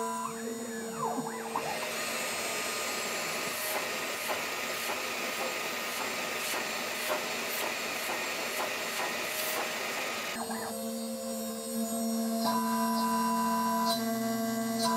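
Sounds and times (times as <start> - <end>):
router spindle hiss and whine: 0.0 - 14.9.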